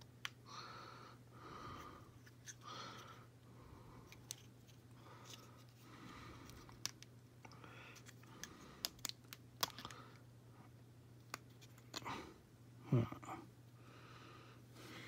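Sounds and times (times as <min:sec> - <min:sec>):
low steady hum: 0:00.0 - 0:15.0
soft breathing: 0:00.4 - 0:06.8, 0:07.4 - 0:09.1, 0:13.3 - 0:15.0.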